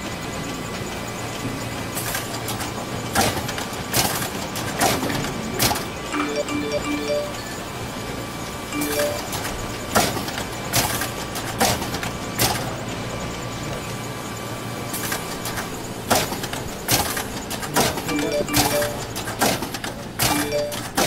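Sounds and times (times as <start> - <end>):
steady background noise: 0.0 - 21.0
falling chime: 6.2 - 7.6, 8.8 - 9.3, 18.1 - 19.1.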